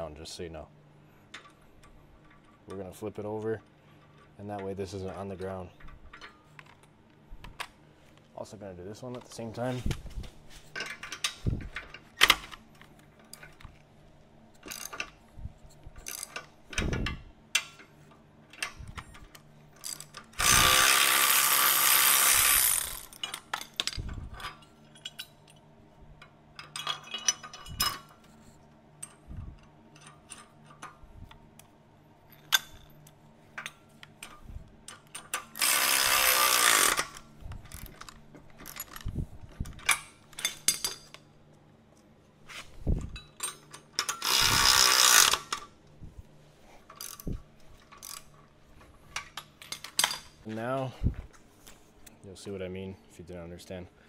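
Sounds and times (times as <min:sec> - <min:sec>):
metal parts clanking: 0:14.6 - 0:15.2, 0:21.4 - 0:25.6, 0:26.6 - 0:28.4, 0:32.3 - 0:41.2, 0:46.9 - 0:50.8
power tool running: 0:20.4 - 0:23.1, 0:35.6 - 0:37.1, 0:44.3 - 0:45.4
ratchet clicks: 0:35.4 - 0:39.0, 0:44.0 - 0:45.7.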